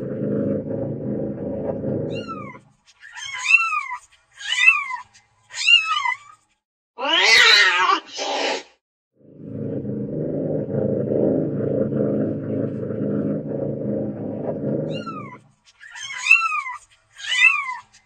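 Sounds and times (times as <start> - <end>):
low steady rumble: 9.2 - 15.5.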